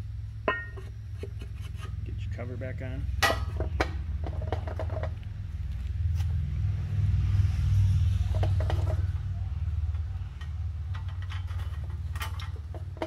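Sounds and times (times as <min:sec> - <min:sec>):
steady low rumble: 0:00.0 - 0:13.0
light metal clicks and knocks: 0:10.3 - 0:13.0.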